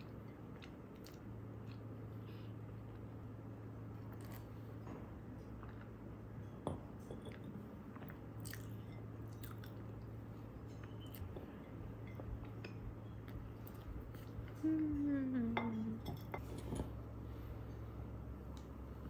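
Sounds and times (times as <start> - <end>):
person chewing cake: 0.0 - 6.4, 7.3 - 15.0
low hum: 0.0 - 19.0.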